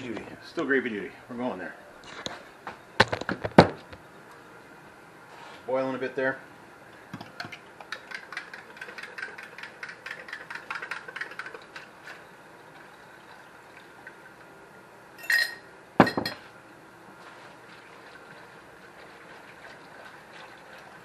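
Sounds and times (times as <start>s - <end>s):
ringing metal clink: 15.2s - 16.4s.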